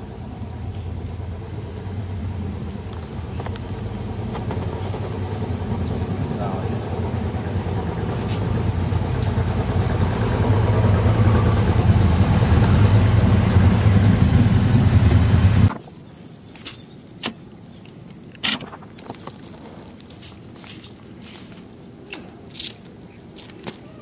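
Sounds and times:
high insect buzz: 0:00.0 - 0:10.2, 0:15.7 - 0:24.0
low engine rumble: 0:00.0 - 0:15.8.

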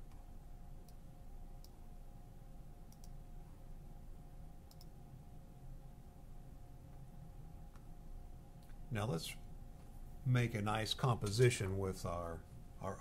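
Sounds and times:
steady low hum: 0:00.0 - 0:13.0
faint computer mouse clicks: 0:02.9 - 0:03.2, 0:04.7 - 0:05.0.

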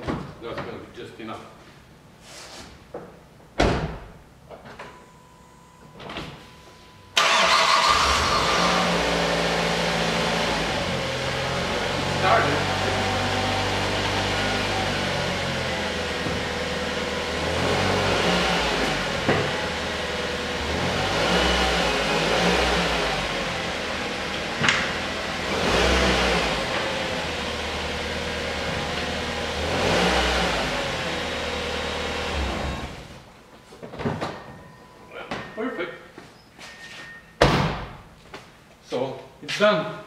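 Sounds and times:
car engine idling and revving: 0:07.2 - 0:33.3.

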